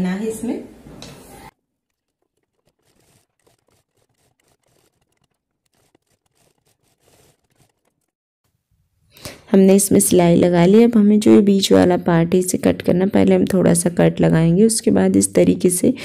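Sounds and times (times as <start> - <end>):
faint clicks and rustles: 1.0 - 8.2.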